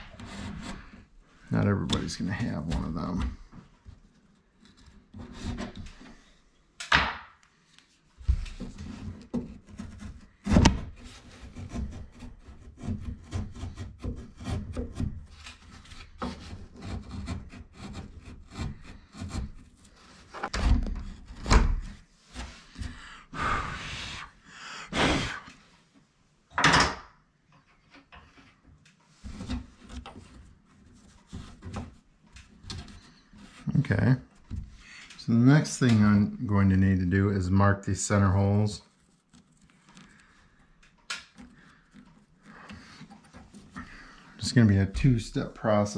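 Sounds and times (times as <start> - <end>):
chisel scraping wood: 0.0 - 6.3, 8.6 - 23.0, 29.2 - 35.1, 38.1 - 44.7.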